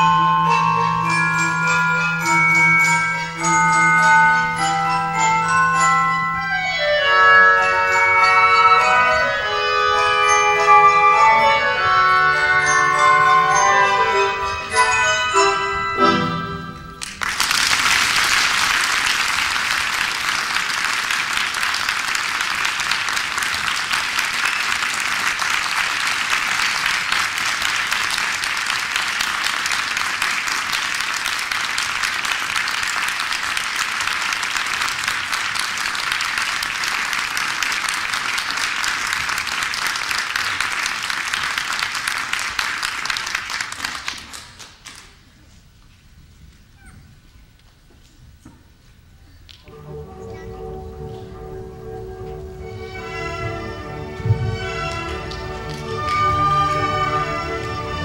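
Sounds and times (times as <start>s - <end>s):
music: 0.0s - 17.3s, 49.6s - 58.0s
audience applauding: 17.0s - 45.2s, 54.2s - 58.0s.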